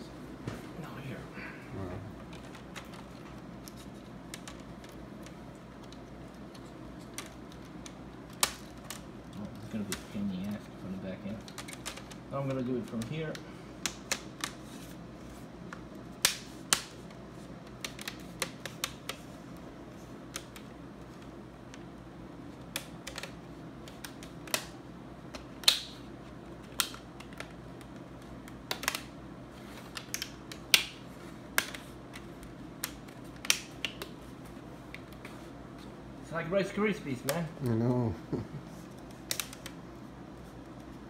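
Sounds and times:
plastic clips snapping into place: 22.6 - 26.0.

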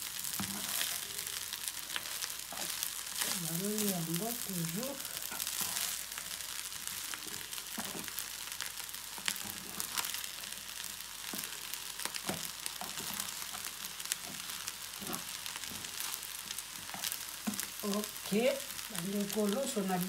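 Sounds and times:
food sizzling in a frying pan: 0.0 - 20.0
spatula scraping a pan: 0.2 - 3.5, 5.0 - 6.4, 11.2 - 17.7.

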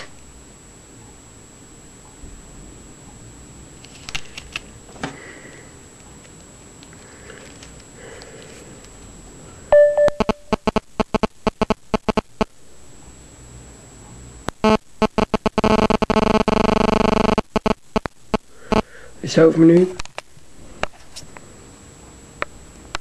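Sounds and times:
phone interference tone: 9.7 - 12.6, 14.5 - 19.0
sharp interference clicks: 10.1 - 12.6, 14.4 - 18.9, 22.4 - 23.0
dense rapid interference buzz: 10.2 - 19.7.

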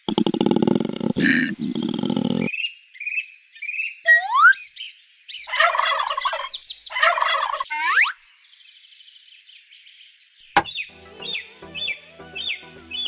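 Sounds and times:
turkey gobbling: 5.5 - 8.0.

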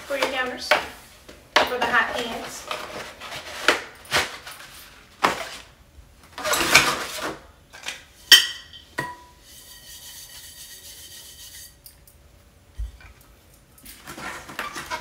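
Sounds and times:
cardboard packaging rustling: 2.2 - 5.8.

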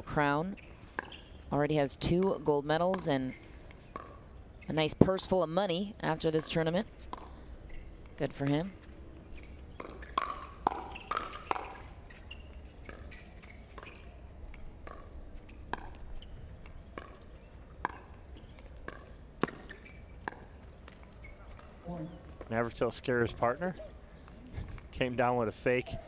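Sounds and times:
paddles hitting pickleball: 0.9 - 4.3, 6.1 - 23.2.

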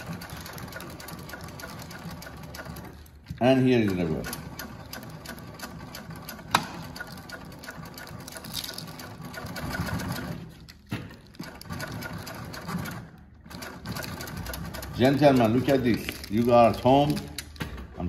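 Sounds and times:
industrial sewing machine stitching: 0.0 - 10.6, 11.4 - 17.4.

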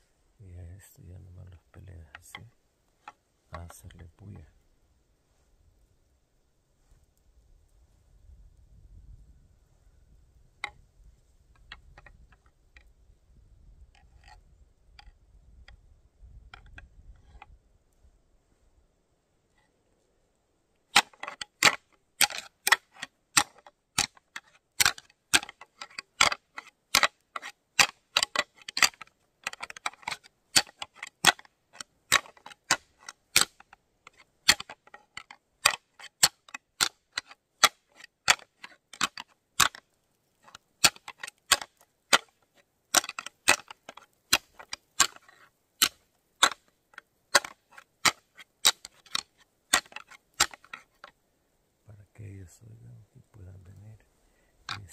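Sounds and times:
antlers clacking together: 1.4 - 4.2, 20.9 - 51.1, 54.7 - 54.9.

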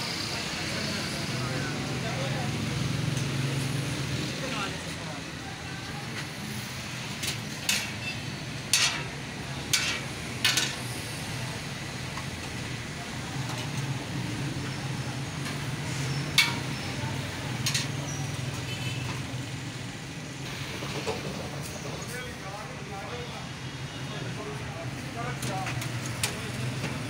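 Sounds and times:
road traffic hum: 0.0 - 27.0
metal utensils clinking on griddle: 7.2 - 10.9, 15.4 - 16.9, 17.5 - 18.6.

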